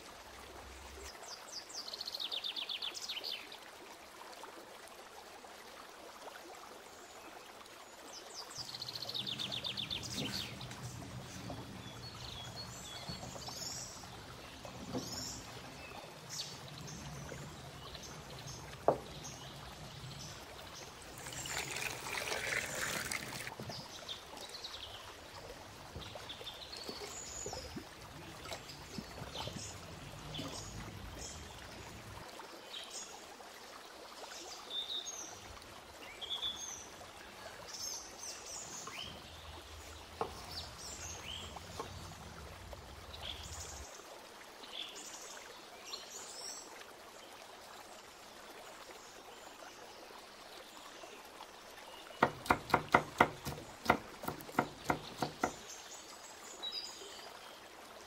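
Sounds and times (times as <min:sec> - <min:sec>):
running water: 0:00.0 - 0:58.0
birds chirping: 0:08.6 - 0:24.3
rapid sharp knocks: 0:52.2 - 0:55.6.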